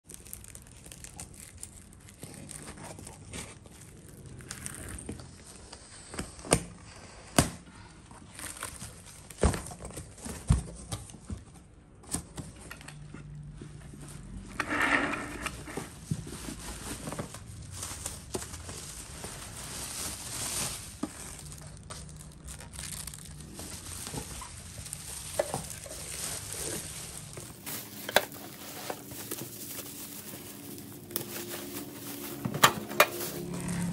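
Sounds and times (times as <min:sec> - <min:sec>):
plastic wrap crinkling: 0:00.0 - 0:06.3, 0:08.2 - 0:10.8, 0:15.5 - 0:33.9
scissors cutting wrapping: 0:21.0 - 0:33.9
cardboard flaps shifting: 0:25.2 - 0:33.9.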